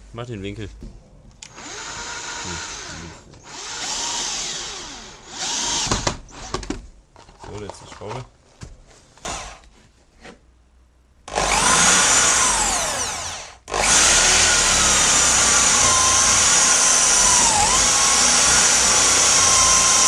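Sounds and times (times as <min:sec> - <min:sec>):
power drill driving a screw: 0:01.4 - 0:06.7, 0:09.2 - 0:09.6, 0:11.3 - 0:20.0.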